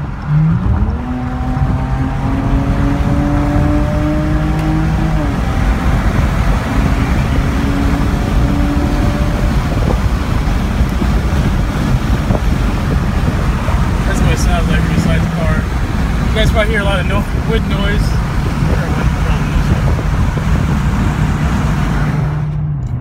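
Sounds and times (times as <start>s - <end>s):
car engine revving: 0.0s - 23.0s
wind and road noise: 0.0s - 23.0s.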